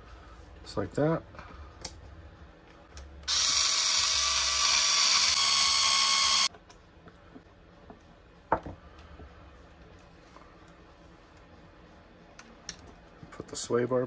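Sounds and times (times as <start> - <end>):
electric screwdriver whirring: 3.3 - 6.5.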